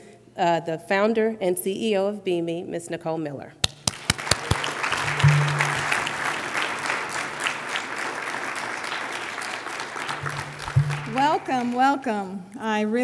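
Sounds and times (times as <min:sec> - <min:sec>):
audience applauding: 0:03.6 - 0:12.1.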